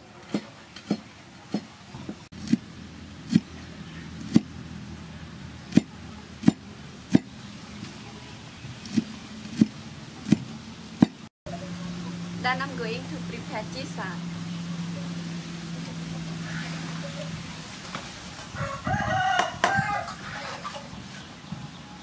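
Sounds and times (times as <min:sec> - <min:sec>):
knife chopping on wooden board: 0:05.7 - 0:07.3, 0:08.9 - 0:11.2.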